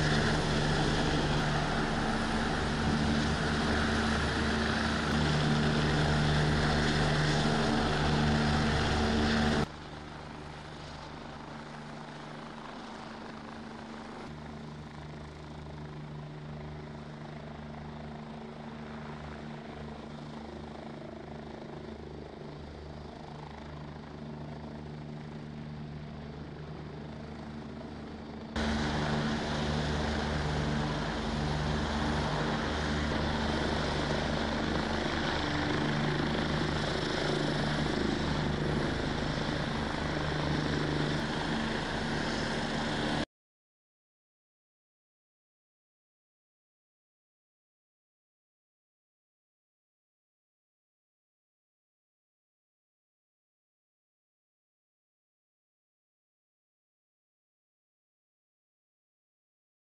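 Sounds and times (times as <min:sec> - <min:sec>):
helicopter hovering: 0:00.0 - 0:43.3.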